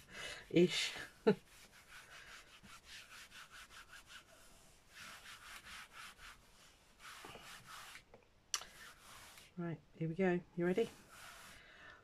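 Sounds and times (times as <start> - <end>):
palms rubbing over fabric: 0.0 - 9.6, 10.6 - 11.8.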